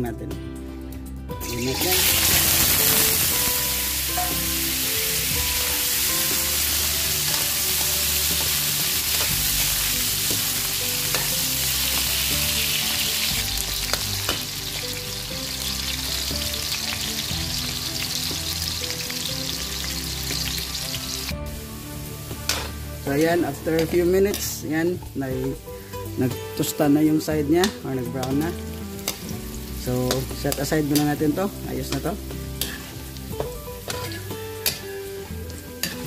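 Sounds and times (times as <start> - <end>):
potatoes sizzling in oil: 1.4 - 36.0
metal ladle scraping wok: 32.6 - 33.1.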